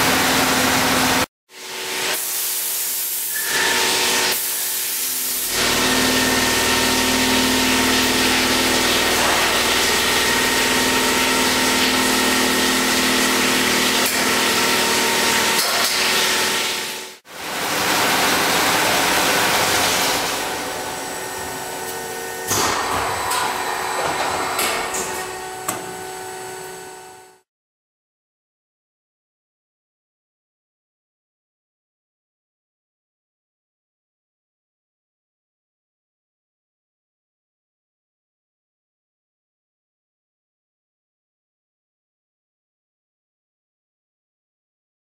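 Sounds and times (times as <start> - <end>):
milling machine hissing and humming: 0.0 - 27.1.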